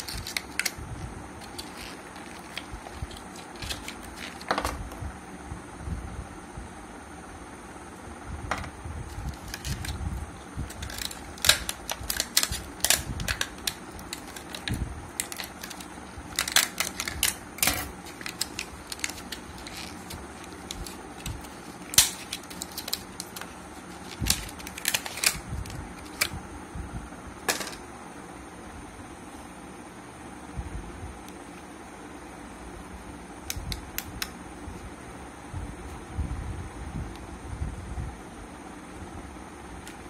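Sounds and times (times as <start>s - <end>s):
plastic packaging crackling: 0.0s - 0.8s, 1.4s - 4.6s, 9.1s - 10.0s, 10.6s - 26.4s.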